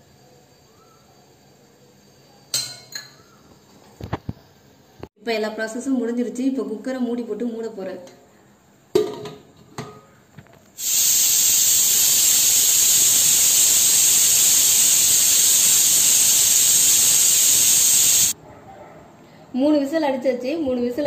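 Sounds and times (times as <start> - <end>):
pressure cooker steam hiss: 10.8 - 18.4.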